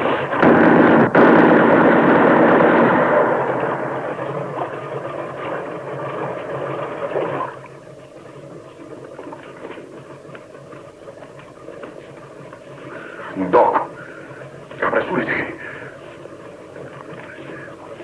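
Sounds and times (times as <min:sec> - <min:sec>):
faint knocks and rustles: 0:05.4 - 0:13.0.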